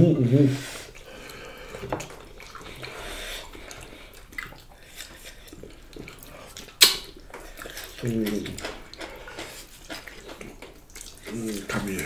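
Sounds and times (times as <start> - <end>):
quiet chewing: 0.6 - 12.0
wet mouth clicks: 0.9 - 12.0
sharp lip smack: 6.8 - 7.1.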